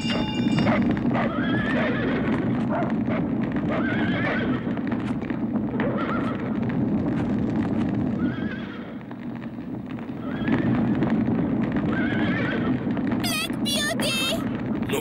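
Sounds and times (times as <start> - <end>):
clattering hooves: 0.0 - 13.2
horses whinnying: 1.0 - 4.9, 5.8 - 6.6, 8.2 - 9.0, 10.2 - 11.0, 11.8 - 12.9.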